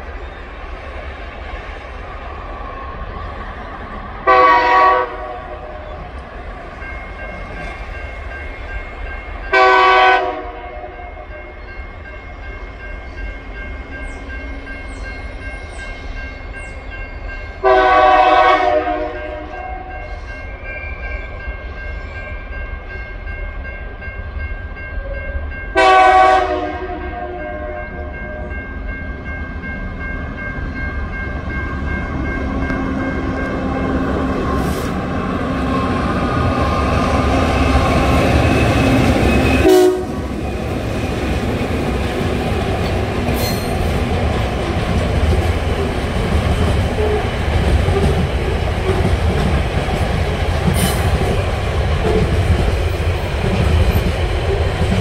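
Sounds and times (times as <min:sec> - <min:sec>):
train rumble: 0:00.0 - 0:55.0
diesel locomotive horn blasts: 0:04.3 - 0:05.9, 0:09.5 - 0:11.7, 0:17.6 - 0:21.0, 0:25.0 - 0:28.6, 0:32.5 - 0:40.6, 0:46.9 - 0:48.2.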